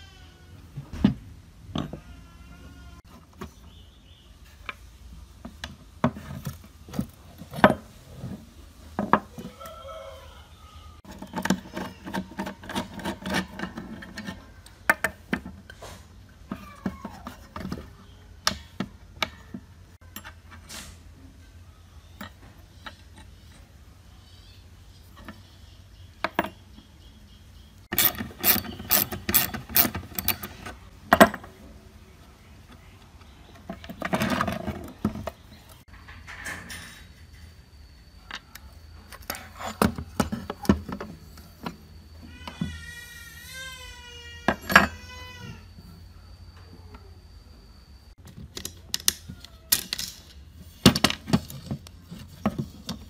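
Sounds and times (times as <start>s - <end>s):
metal parts clinking on wood: 27.9s - 31.5s, 48.2s - 53.0s.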